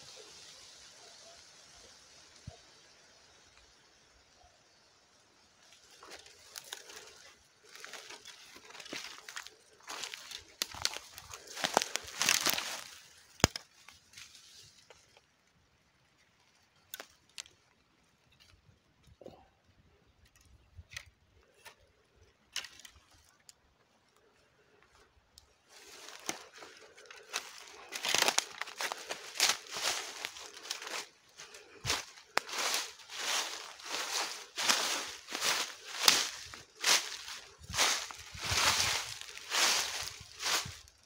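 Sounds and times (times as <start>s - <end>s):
footsteps crunching through dry leaves: 5.1s - 15.3s, 25.6s - 41.0s
small crackles and snaps: 5.6s - 15.3s, 16.2s - 19.2s, 20.1s - 32.8s.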